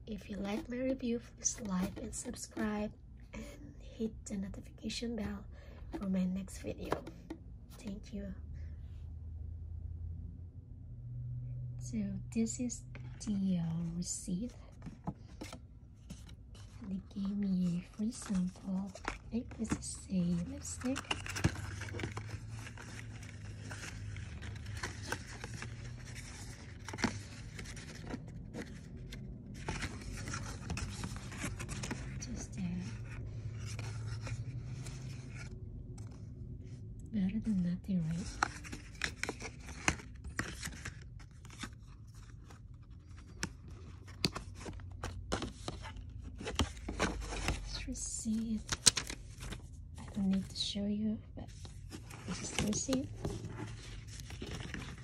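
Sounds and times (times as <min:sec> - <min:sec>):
low steady hum: 0:00.0 - 0:55.0
paper and cardboard rustling: 0:00.2 - 0:02.9, 0:12.9 - 0:36.3, 0:37.4 - 0:50.7, 0:51.4 - 0:55.0.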